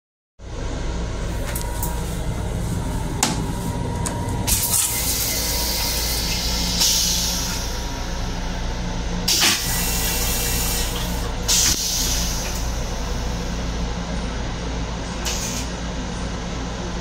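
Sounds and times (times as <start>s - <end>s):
moving railcar hum: 0.4s - 17.0s
toilet flushing water spray: 4.5s - 7.9s, 9.2s - 13.5s, 15.2s - 15.7s.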